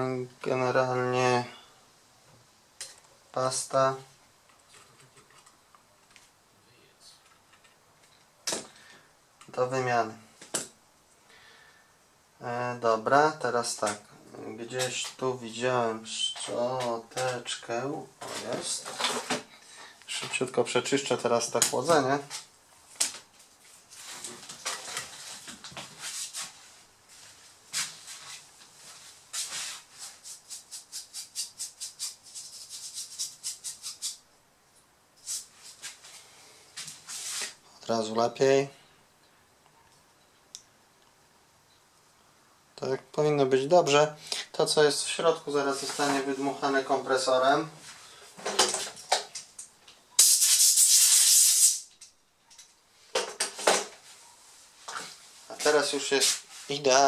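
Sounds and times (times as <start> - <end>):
brush scrubbing heatsink: 29.4 - 34.2
compressed air blow gun hiss: 50.2 - 51.9.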